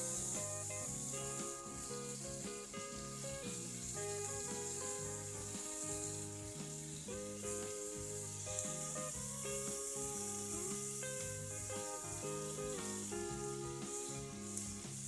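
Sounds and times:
background music: 0:00.0 - 0:15.0
skewers sizzling on grill: 0:00.0 - 0:15.0.

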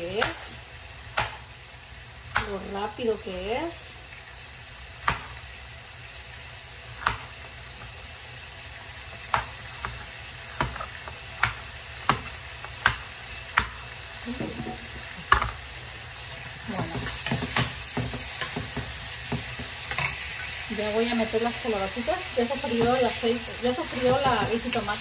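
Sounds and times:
vegetables sizzling in oil: 0:00.0 - 0:25.0
knife chopping on cutting board: 0:01.1 - 0:01.4, 0:05.0 - 0:05.4, 0:07.0 - 0:07.3, 0:10.6 - 0:13.8.

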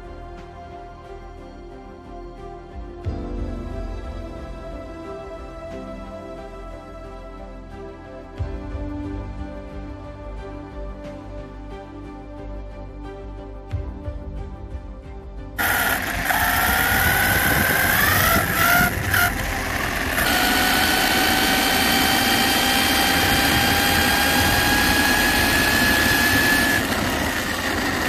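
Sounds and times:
rc car motor whine: 0:15.6 - 0:28.0.

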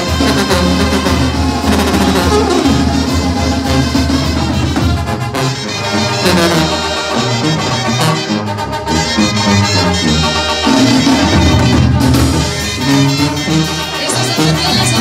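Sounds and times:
live brass band music: 0:00.0 - 0:15.0
sousaphone bass line: 0:00.1 - 0:04.5.

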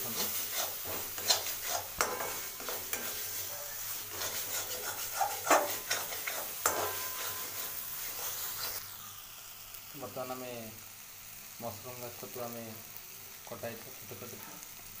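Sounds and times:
metal spatula scraping pan: 0:00.0 - 0:08.8
paste sizzling: 0:00.0 - 0:15.0
spatula clanking against pan: 0:00.2 - 0:07.7.

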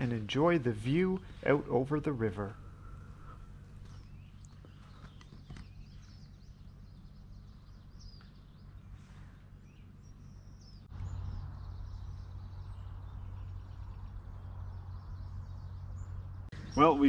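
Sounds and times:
birds chirping: 0:00.0 - 0:17.0
faint outdoor background noise: 0:00.0 - 0:17.0
steady low rushing noise: 0:05.8 - 0:17.0.

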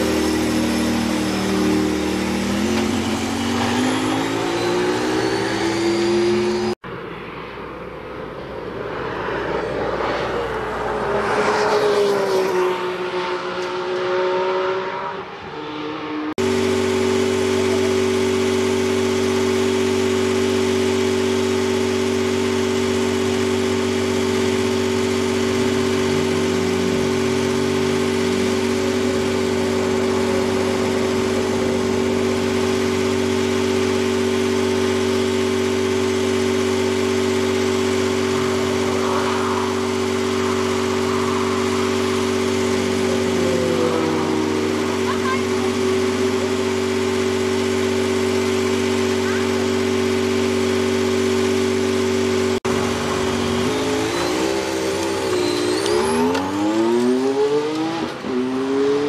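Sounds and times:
car engine idling: 0:00.0 - 0:05.4, 0:16.4 - 0:56.7.

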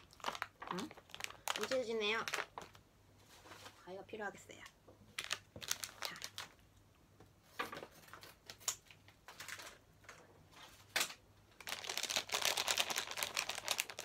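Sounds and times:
plastic packet crinkling: 0:00.0 - 0:02.8, 0:05.1 - 0:06.6, 0:11.6 - 0:14.0.

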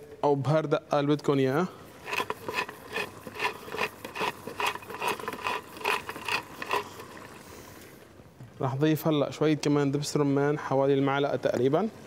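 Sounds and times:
pepper mill grinding: 0:01.9 - 0:07.4.

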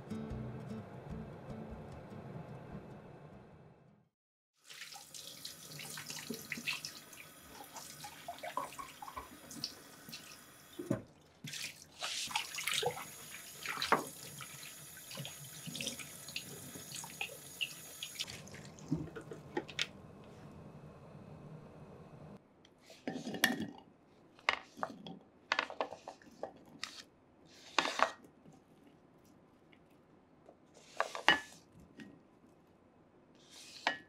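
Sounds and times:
water splashing: 0:11.4 - 0:19.8.

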